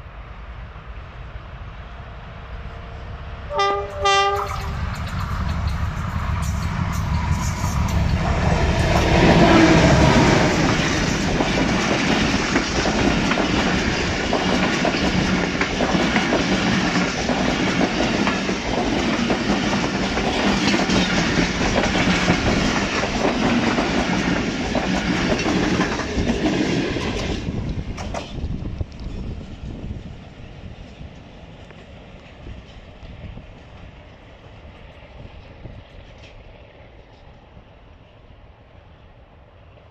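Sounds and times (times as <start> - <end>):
diesel locomotive engine: 0.0 - 39.9
train wheels clacking over rail joints: 4.2 - 29.6.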